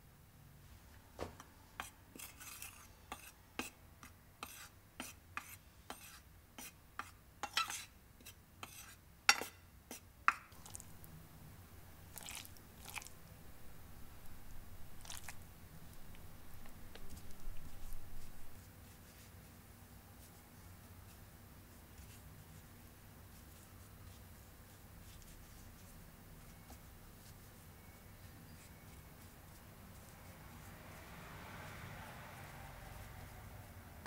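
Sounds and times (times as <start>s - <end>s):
soft brushing sounds: 0.5s - 11.1s, 14.3s - 34.0s
metal spoon scraping a plate: 1.8s - 3.8s, 4.4s - 9.6s.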